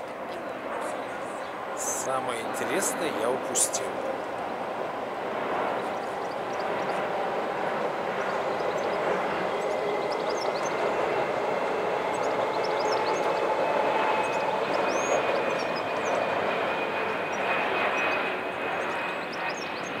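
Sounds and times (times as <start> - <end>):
birds chirping: 0.0 - 20.0
faint whine: 0.0 - 20.0
train rumbling over bridge: 1.1 - 16.4.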